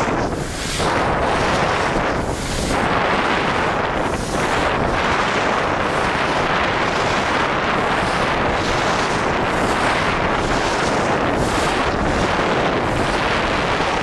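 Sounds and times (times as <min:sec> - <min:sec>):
skis sliding over snow: 0:00.0 - 0:14.0
wind buffeting microphone: 0:00.0 - 0:14.0.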